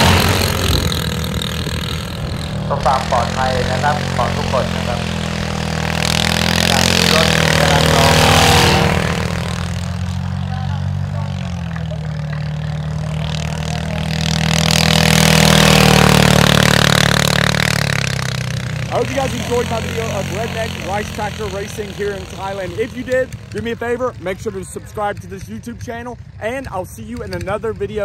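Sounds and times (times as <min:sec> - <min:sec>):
diesel engine running hard: 0:00.0 - 0:28.0.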